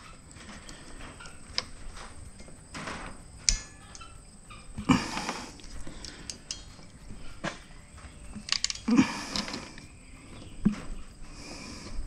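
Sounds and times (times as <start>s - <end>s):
rustling: 0.0s - 12.0s
crimping tool clicks: 0.5s - 9.9s.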